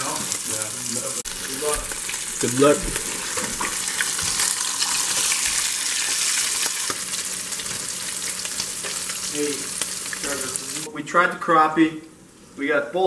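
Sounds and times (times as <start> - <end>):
fish frying in hot oil: 0.0 - 10.9
oil popping: 1.2 - 10.4.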